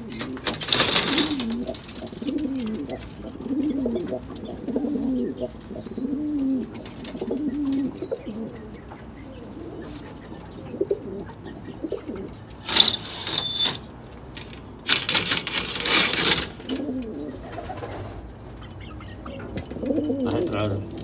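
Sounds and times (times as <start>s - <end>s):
loud rustling bursts: 0.0s - 3.2s, 12.6s - 16.8s
pigeons cooing: 0.0s - 13.8s, 15.4s - 21.0s.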